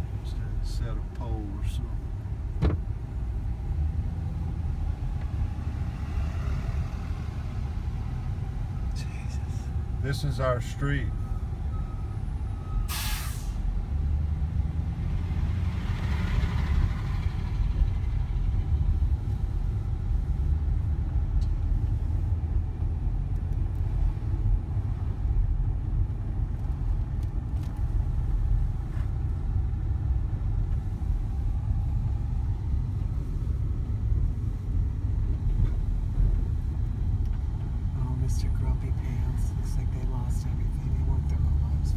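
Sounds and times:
vehicle engine and road rumble: 0:00.0 - 0:41.9
short sharp hiss: 0:12.9 - 0:13.6.

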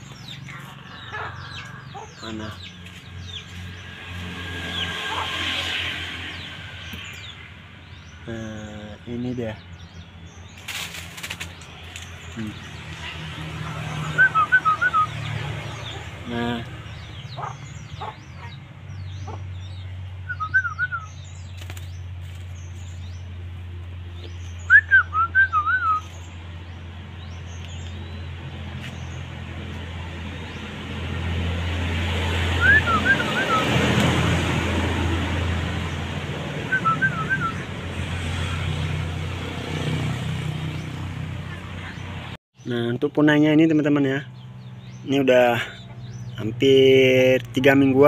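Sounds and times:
woodpecker chattering calls: 0:00.0 - 0:03.8, 0:06.3 - 0:23.2
small birds twittering: 0:00.0 - 0:48.0.

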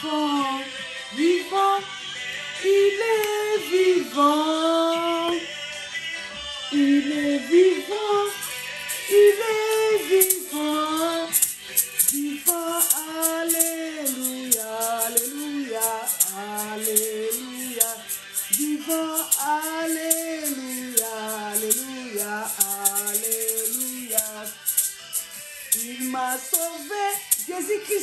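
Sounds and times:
person singing worship music: 0:00.0 - 0:28.0
shaker keeping a beat: 0:07.5 - 0:28.0.

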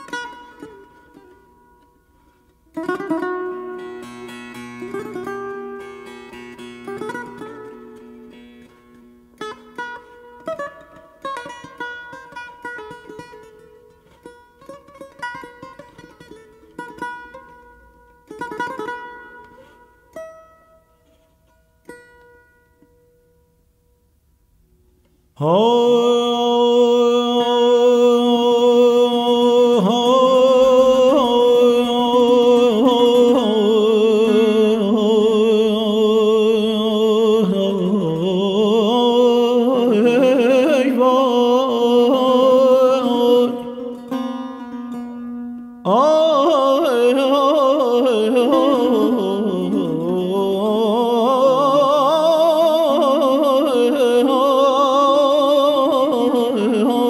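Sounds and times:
setar playing: 0:00.0 - 0:24.0, 0:38.0 - 0:53.9
man singing long ornamented notes: 0:25.3 - 0:57.0.

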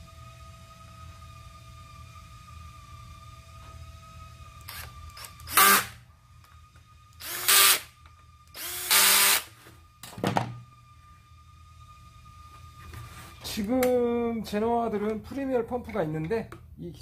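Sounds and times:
cordless drill driving screws: 0:04.7 - 0:05.9, 0:07.2 - 0:07.8, 0:08.6 - 0:09.5.

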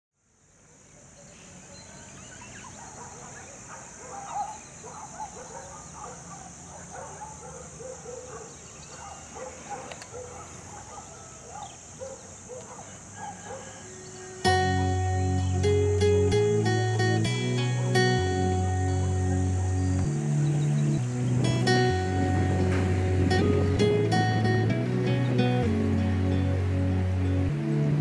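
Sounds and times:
high-pitched insect drone: 0:12.8 - 0:24.5
acoustic guitar: 0:14.0 - 0:28.0.

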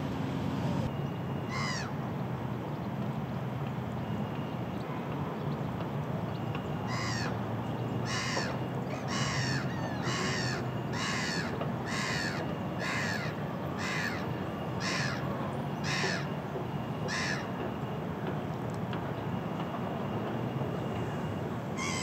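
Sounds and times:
gull harsh calls: 0:01.5 - 0:01.9, 0:06.9 - 0:07.3, 0:08.1 - 0:14.2, 0:14.8 - 0:15.2, 0:15.8 - 0:16.3, 0:17.1 - 0:17.5, 0:21.8 - 0:22.0.

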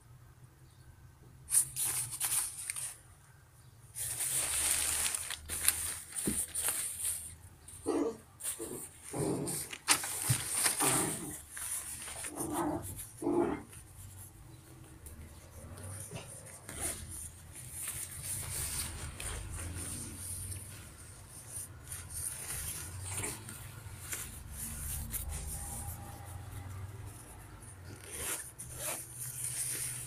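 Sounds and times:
nylon jacket rustling: 0:27.9 - 0:30.0.

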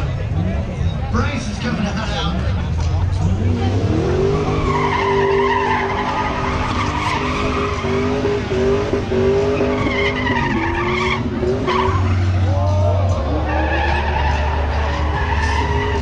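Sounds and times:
car engine revving high: 0:03.1 - 0:16.0
tyres squealing: 0:03.9 - 0:12.3.

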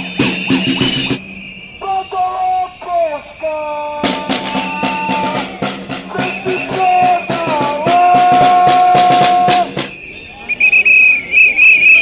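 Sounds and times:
snare drum marching rhythm: 0:00.0 - 0:01.2, 0:04.0 - 0:10.0.

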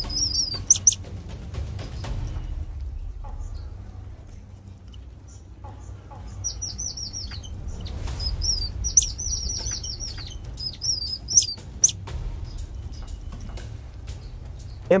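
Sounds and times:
high-pitched chirping calls: 0:00.0 - 0:01.1, 0:04.8 - 0:15.0
low steady rumble: 0:00.0 - 0:15.0.

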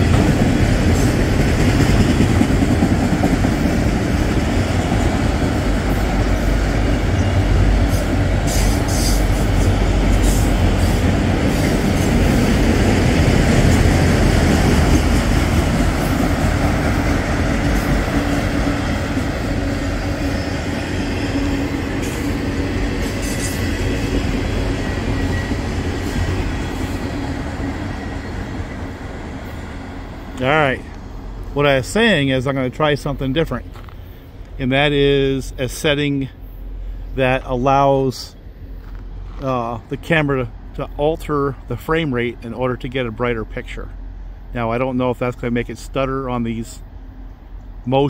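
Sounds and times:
wheels clacking over rail joints: 0:00.0 - 0:29.6
train wheels rumbling on rails: 0:00.0 - 0:48.0.

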